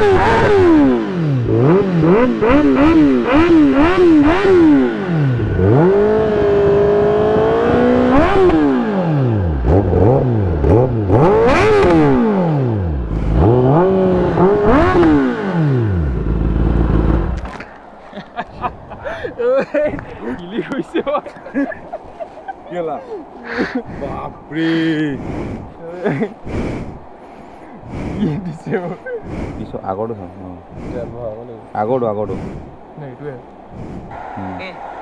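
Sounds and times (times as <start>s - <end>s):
motorcycle engine revving: 0.0s - 17.6s.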